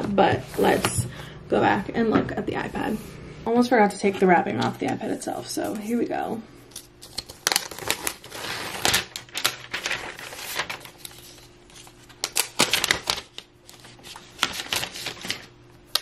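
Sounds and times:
plastic wrapping crackling: 7.1s - 15.5s.

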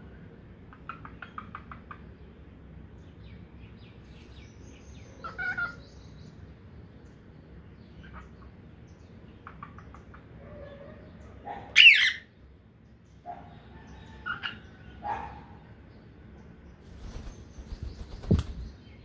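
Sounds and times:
cockatiel chirping and squawking: 5.2s - 5.8s, 11.7s - 12.2s.

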